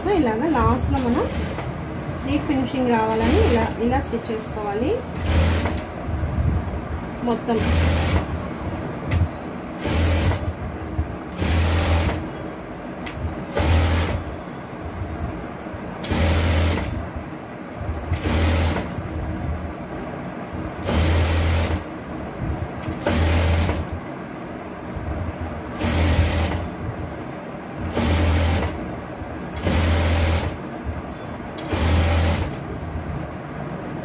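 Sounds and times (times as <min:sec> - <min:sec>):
low machine hum: 0:00.0 - 0:34.0
sewing machine stitching: 0:00.8 - 0:01.8, 0:03.1 - 0:04.0, 0:05.1 - 0:05.9, 0:07.4 - 0:08.3, 0:09.8 - 0:10.6, 0:11.3 - 0:12.3, 0:13.5 - 0:14.3, 0:16.0 - 0:17.0, 0:18.2 - 0:19.0, 0:20.8 - 0:21.9, 0:22.9 - 0:23.9, 0:25.7 - 0:26.8, 0:27.9 - 0:28.9, 0:29.6 - 0:30.7, 0:31.6 - 0:32.7.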